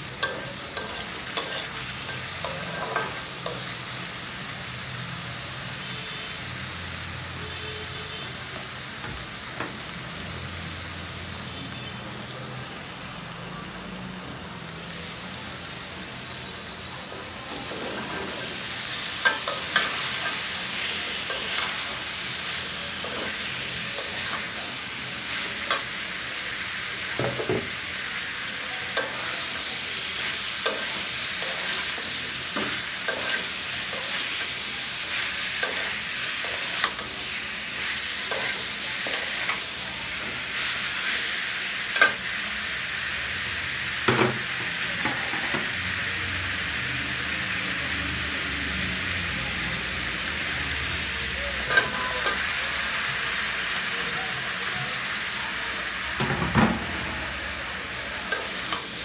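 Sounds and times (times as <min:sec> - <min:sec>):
vegetables sizzling in oil: 0:00.0 - 0:59.0
metal spatula scraping pan: 0:00.2 - 0:03.7.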